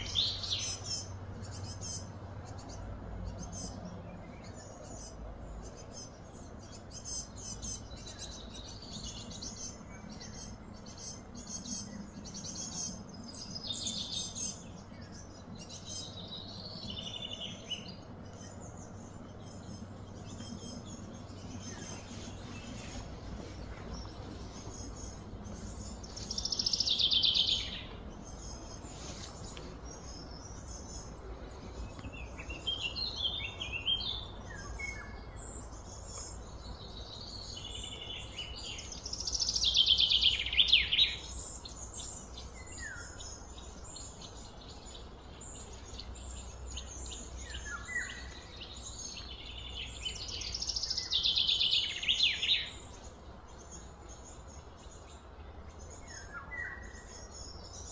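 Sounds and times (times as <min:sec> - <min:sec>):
steady low hum: 0:00.0 - 0:51.2
soft bird chirps: 0:00.0 - 0:57.9.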